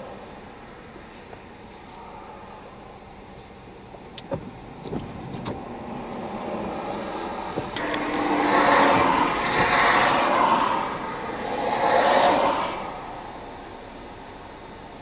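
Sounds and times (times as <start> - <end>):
loud rushing noise: 5.8 - 13.6
truck passing on wet highway: 6.2 - 13.6.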